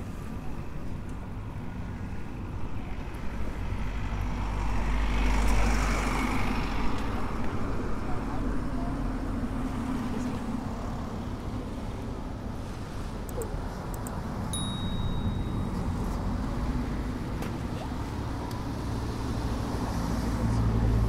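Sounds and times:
traffic engine rumble: 0.0 - 21.0
short high beep: 14.6 - 16.0.

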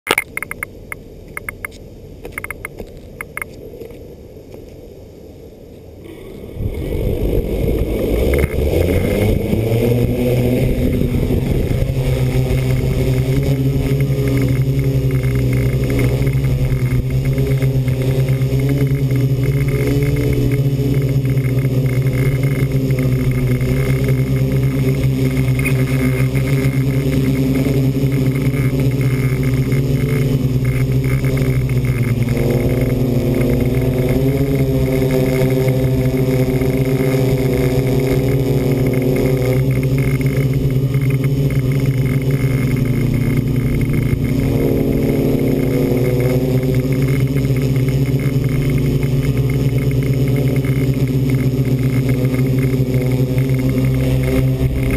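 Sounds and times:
short clicks: 0.1 - 3.6
drone motors and propellers spinning: 0.1 - 54.9.

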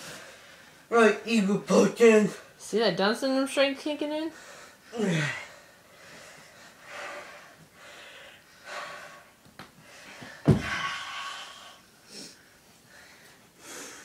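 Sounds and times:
people gasping breaths: 4.3 - 14.0
loud thump: 10.5 - 10.8.

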